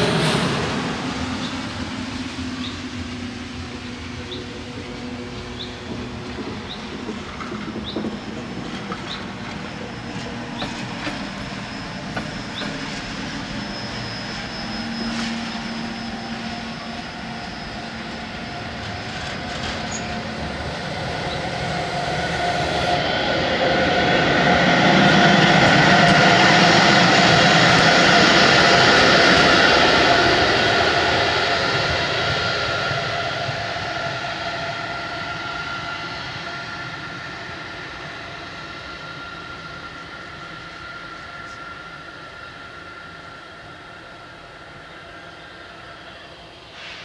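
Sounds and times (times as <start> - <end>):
electric locomotive running: 0.0 - 47.0
wheel squeals: 4.2 - 23.2.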